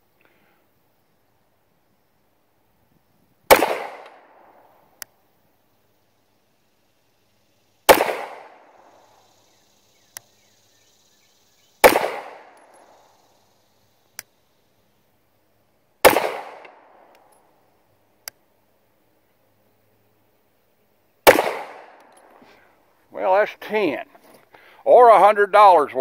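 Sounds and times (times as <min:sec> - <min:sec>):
pistol shots: 0:03.5 - 0:04.6, 0:07.9 - 0:08.8, 0:11.8 - 0:13.0, 0:16.0 - 0:17.1, 0:21.2 - 0:22.1.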